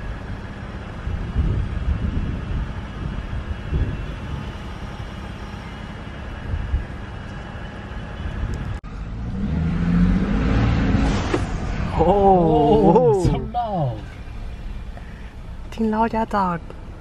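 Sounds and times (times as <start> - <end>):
truck engine rumbling: 0.0 - 17.0
turbo intake whoosh: 8.9 - 12.4.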